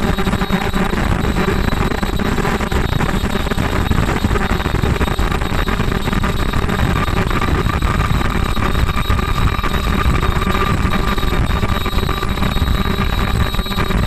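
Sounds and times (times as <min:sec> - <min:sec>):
high-pitched machine whine: 0:00.0 - 0:14.0.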